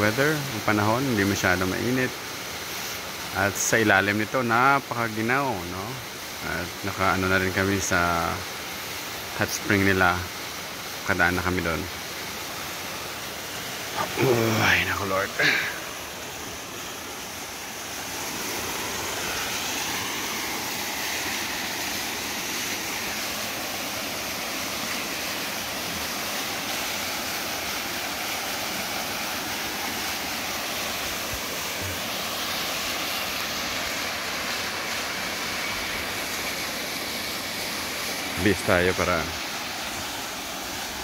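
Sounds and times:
waterfall rushing: 0.0s - 41.0s.

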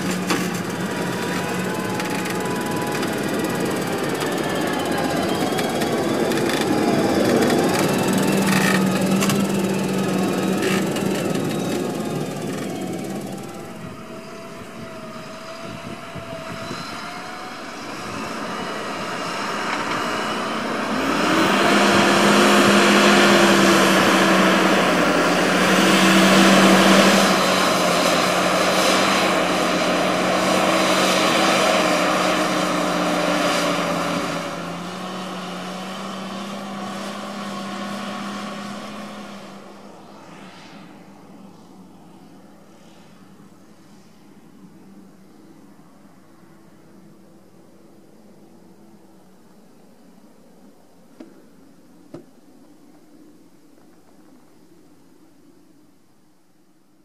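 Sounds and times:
tractor diesel engine under load: 0.0s - 40.6s.

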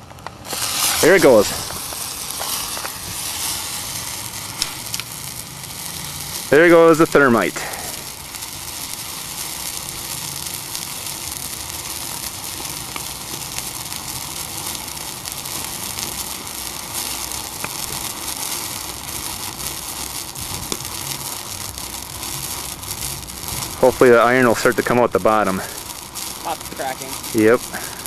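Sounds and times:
thermite burning with a hiss: 0.0s - 28.0s.

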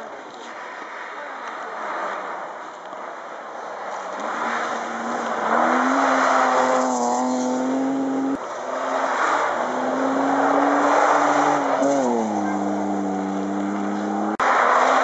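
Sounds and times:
rally car engine revving: 4.0s - 15.0s.

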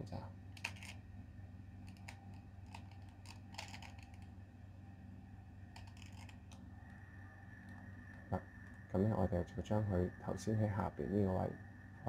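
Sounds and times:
puzzle cube plastic clicks: 0.6s - 1.0s, 1.8s - 4.3s, 5.8s - 6.6s.

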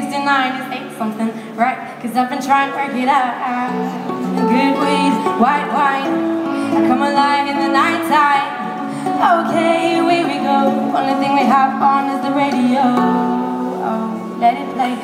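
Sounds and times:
woman singing: 0.0s - 15.0s
ukulele: 3.1s - 15.0s.

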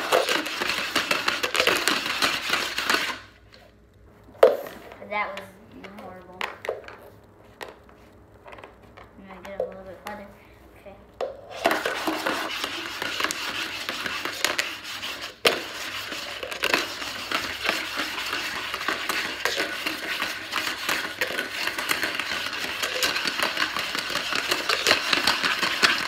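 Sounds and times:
dice rattling in a cup: 0.0s - 3.3s, 11.5s - 26.0s.

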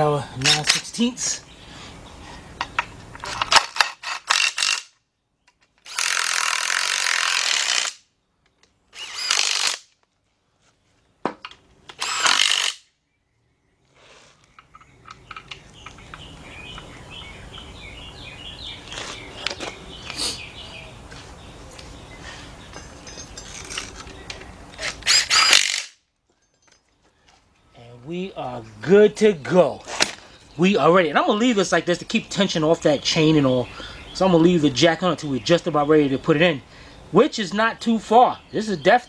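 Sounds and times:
tool and bolts clicking: 14.6s - 16.8s, 22.8s - 27.0s.

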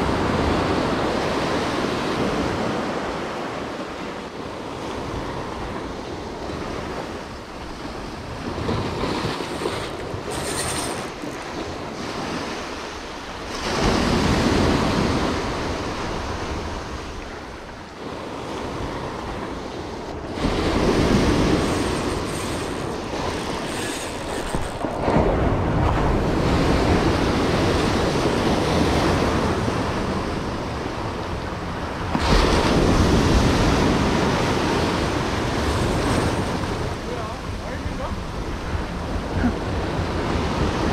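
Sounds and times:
surf breaking on rocks: 20.1s - 29.9s.

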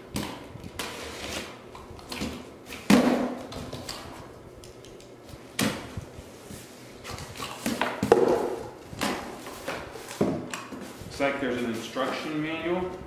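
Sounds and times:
cardboard and tape rustling: 5.3s - 13.0s
cardboard box knocks: 8.0s - 8.6s.

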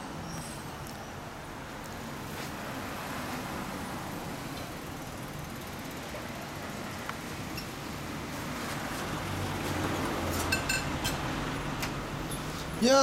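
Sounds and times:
road traffic hum: 0.0s - 13.0s.

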